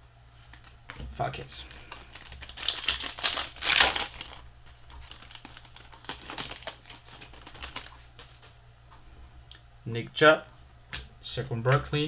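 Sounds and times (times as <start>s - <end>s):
plastic wrapper crinkling: 0.4s - 0.8s, 1.4s - 8.6s.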